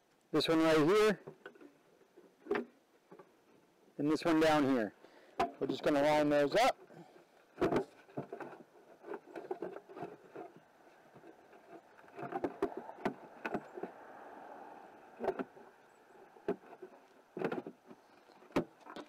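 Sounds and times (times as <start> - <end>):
plastic rubbing: 5.6 - 19.0.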